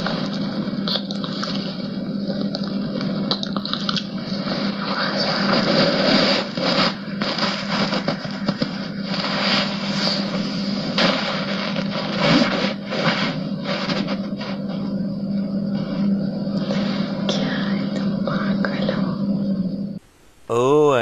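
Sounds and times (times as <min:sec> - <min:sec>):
steady low hum: 0:00.0 - 0:21.0
bedding rustling: 0:05.4 - 0:14.6.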